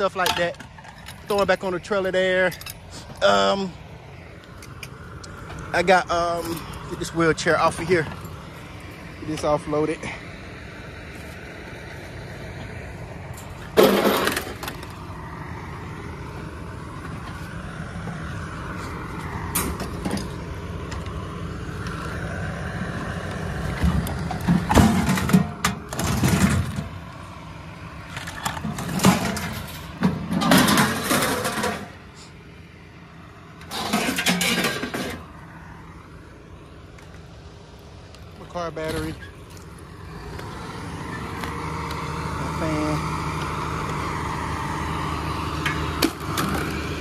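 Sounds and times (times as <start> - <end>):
engine rumble: 0.0 - 47.0
scrap metal clattering and scraping: 13.3 - 15.0, 23.8 - 27.0, 28.1 - 32.3, 33.6 - 35.3.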